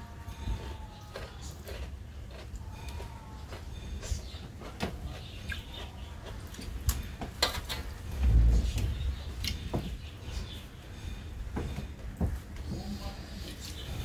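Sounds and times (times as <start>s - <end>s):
chewing and lip smacks: 1.0s - 7.9s.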